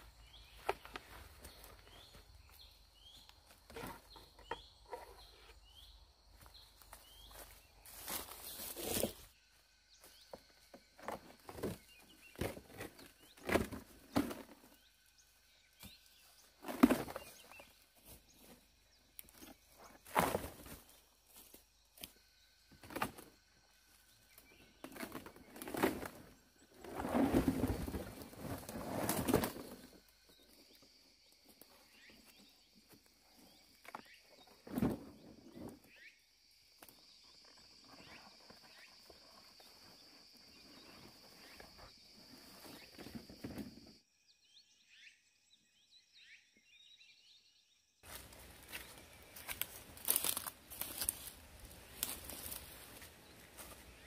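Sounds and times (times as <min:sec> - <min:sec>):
footsteps through leafy undergrowth: 0:06.4 - 0:09.3, 0:48.0 - 0:54.0.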